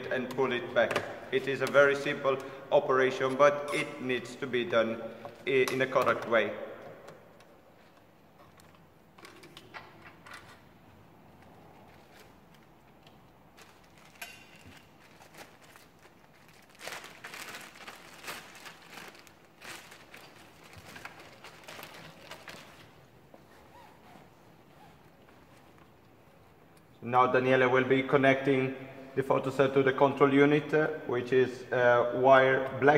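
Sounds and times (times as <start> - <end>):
rustling of wires: 7.3 - 26.8.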